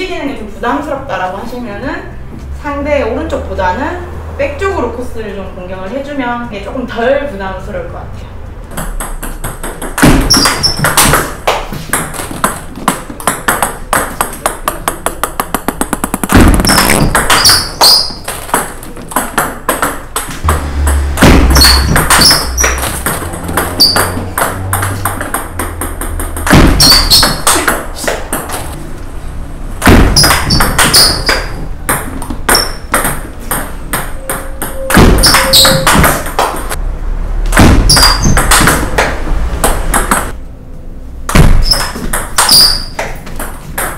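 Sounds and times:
table tennis ball clicking: 11.9 - 20.3.

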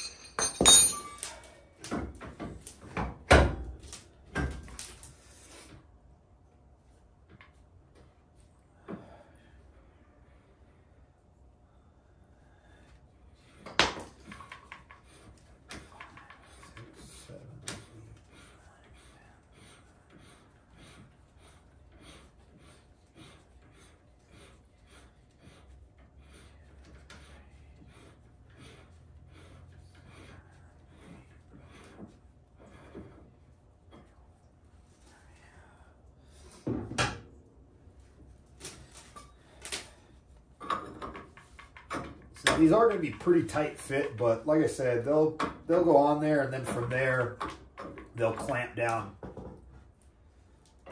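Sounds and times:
hand tools clanking on metal: 0.0 - 1.5.

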